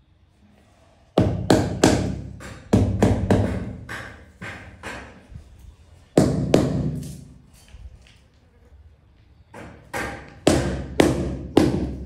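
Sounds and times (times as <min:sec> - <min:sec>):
rubber mallet thudding on tile: 0:01.2 - 0:05.2.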